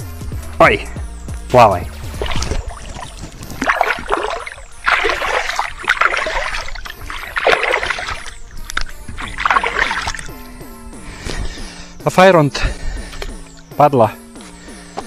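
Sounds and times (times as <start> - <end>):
water splashing: 1.8 - 11.4.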